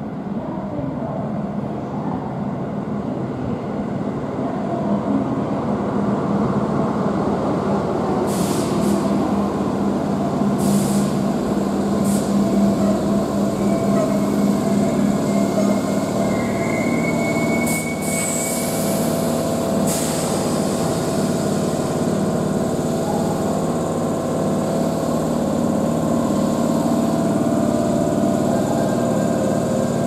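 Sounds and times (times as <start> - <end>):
train equipment humming: 5.0 - 30.0
short air hisses: 8.3 - 9.1, 10.6 - 11.2, 12.0 - 12.4, 17.6 - 19.2, 19.8 - 21.3.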